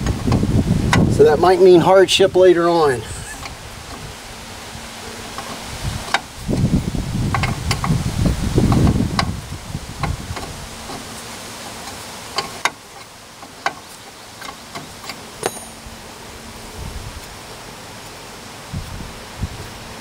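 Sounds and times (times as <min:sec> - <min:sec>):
brief high metallic ring: 0:15.4 - 0:16.2.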